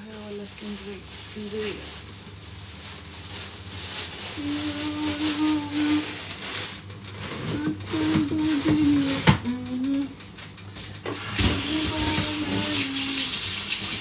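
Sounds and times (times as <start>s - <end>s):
plastic bag rustling: 0.0s - 14.0s
woman singing a steady note: 4.4s - 6.2s, 7.5s - 10.2s, 11.4s - 13.3s.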